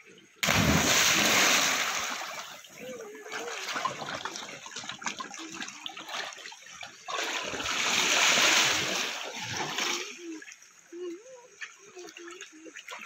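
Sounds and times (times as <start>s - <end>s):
loud rushing splash: 0.4s - 2.5s
water splashing around swimmer: 0.4s - 10.4s.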